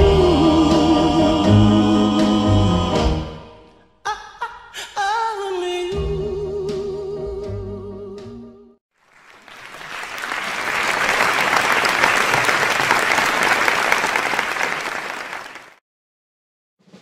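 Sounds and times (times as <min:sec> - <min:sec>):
audience clapping: 0:09.0 - 0:15.8.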